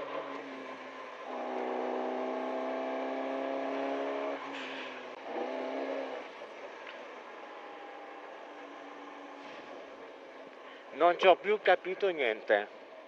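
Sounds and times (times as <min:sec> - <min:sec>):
car engine from inside cabin: 0:00.0 - 0:04.5.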